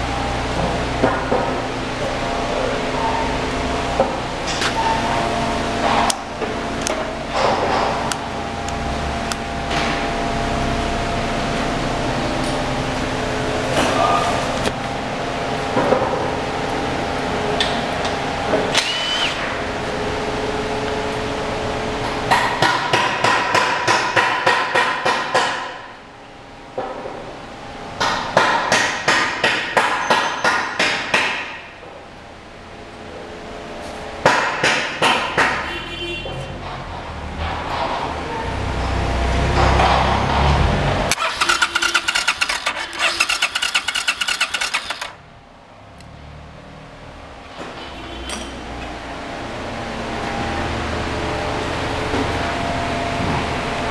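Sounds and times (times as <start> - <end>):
steady background noise: 0.0 - 53.9
motorcycle engine: 37.0 - 48.4.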